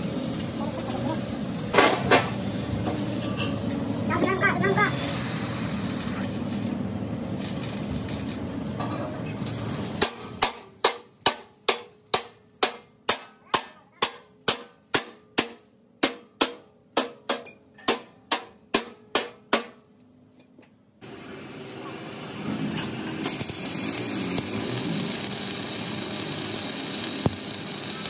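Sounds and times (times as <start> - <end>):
hammer striking steel: 10.0 - 19.9.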